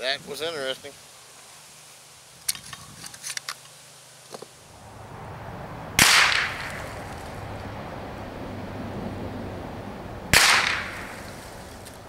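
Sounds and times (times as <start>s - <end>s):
rifle shot: 6.0s - 6.9s, 10.3s - 11.3s.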